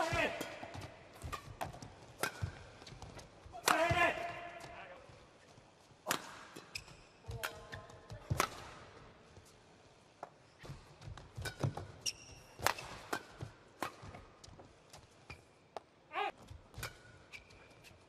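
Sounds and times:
racket hitting shuttlecock: 0:00.0 - 0:04.4, 0:06.0 - 0:08.9, 0:10.2 - 0:14.5
shoes squeaking on court: 0:06.6 - 0:08.3, 0:10.3 - 0:13.4, 0:15.0 - 0:15.8, 0:16.4 - 0:18.0.

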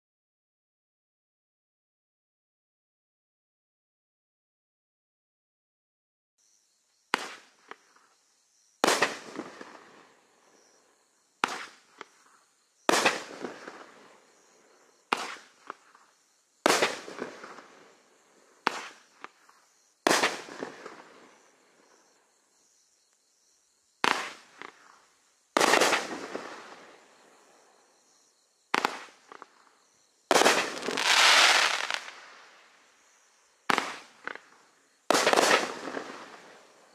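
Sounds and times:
fireworks bangs: 0:07.1 - 0:07.9, 0:08.8 - 0:10.2, 0:11.4 - 0:12.2, 0:12.9 - 0:14.1, 0:15.1 - 0:15.9, 0:16.6 - 0:18.0, 0:18.6 - 0:21.4, 0:24.0 - 0:25.0, 0:25.6 - 0:27.2, 0:28.7 - 0:29.6, 0:30.3 - 0:32.5, 0:33.7 - 0:34.5, 0:35.1 - 0:36.7.

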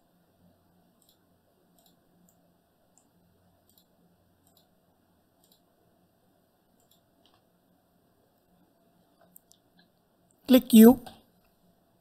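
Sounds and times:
faint computer mouse clicks: 0:01.0 - 0:04.7, 0:05.4 - 0:05.7, 0:06.8 - 0:07.4.

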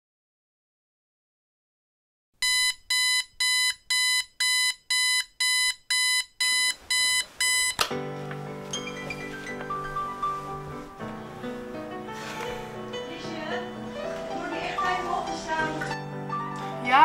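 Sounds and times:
alarm clock beeping: 0:02.4 - 0:07.8
alarm switch click: 0:02.4 - 0:07.9
soft music: 0:07.8 - 0:17.0.

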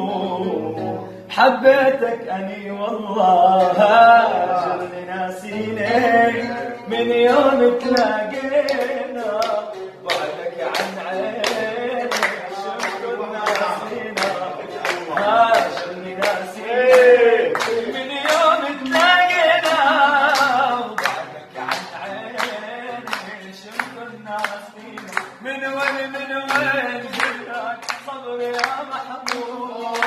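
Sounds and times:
man singing: 0:00.0 - 0:30.0
people clapping along: 0:01.5 - 0:30.0.

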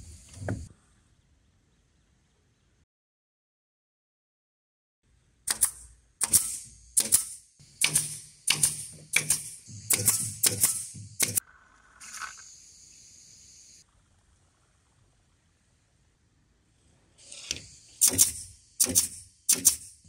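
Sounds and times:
nail gun firing into wood: 0:05.5 - 0:11.4, 0:17.5 - 0:20.0.

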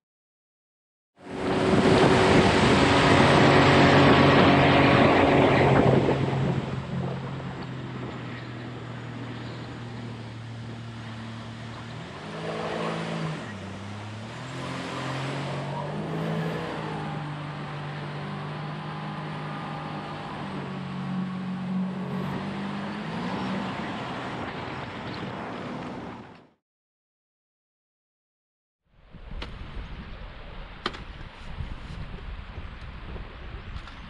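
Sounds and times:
outboard boat engine running: 0:01.2 - 0:26.3
rushing wind and spray: 0:01.2 - 0:26.4, 0:29.0 - 0:34.0.

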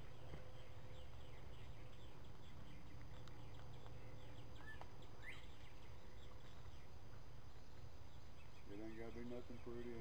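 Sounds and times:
insects chirping: 0:03.1 - 0:10.0.

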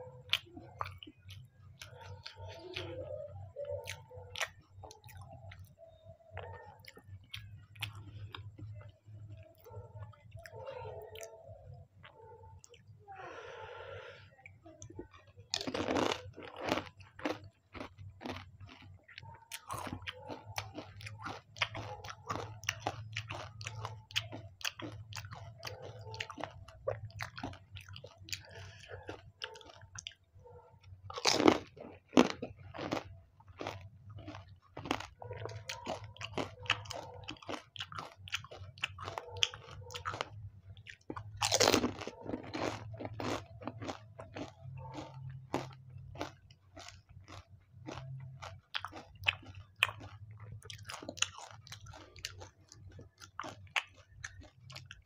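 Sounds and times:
crisp shells crunching in mouth: 0:14.8 - 0:30.2, 0:31.1 - 0:55.0.

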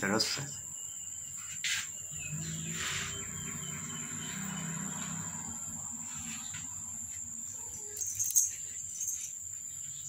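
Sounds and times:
high insect drone: 0:00.0 - 0:10.0
faint bird chirps: 0:00.1 - 0:05.3.

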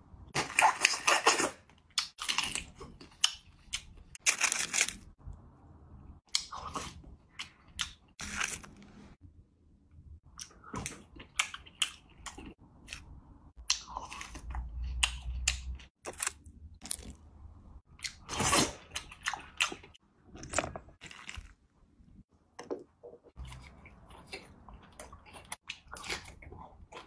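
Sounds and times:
seafood crunching and chewing: 0:17.9 - 0:21.7, 0:23.3 - 0:27.0.

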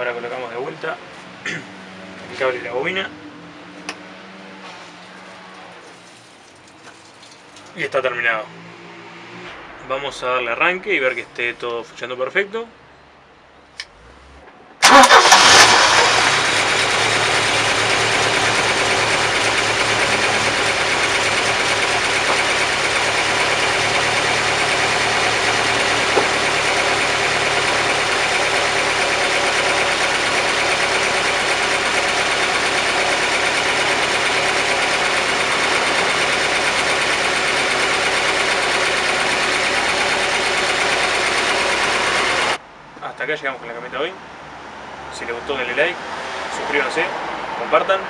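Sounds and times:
car engine starting and idling: 0:13.8 - 0:42.6.

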